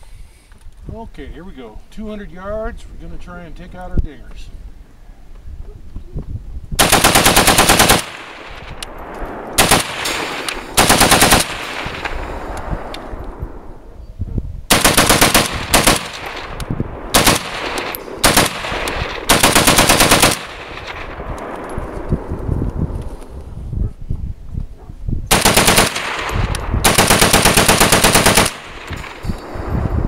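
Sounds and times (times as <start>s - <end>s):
rifle firing in bursts: 6.8s - 13.5s, 14.7s - 22.3s, 25.3s - 29.6s
gunshot echo: 7.8s - 13.5s, 14.7s - 22.3s, 25.3s - 29.7s.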